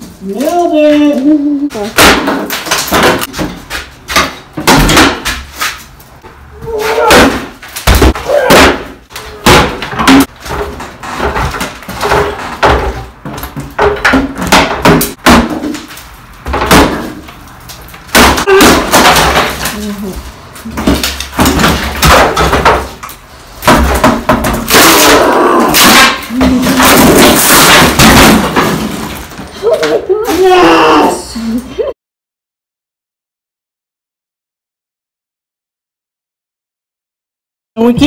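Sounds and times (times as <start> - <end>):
boards clattering down: 1.7 - 5.8, 6.8 - 20.0, 20.6 - 30.0
sledgehammer smashing wood: 1.8 - 5.8, 6.7 - 17.4, 18.1 - 19.9, 20.7 - 29.4
wood splintering: 1.8 - 5.9, 6.7 - 29.4.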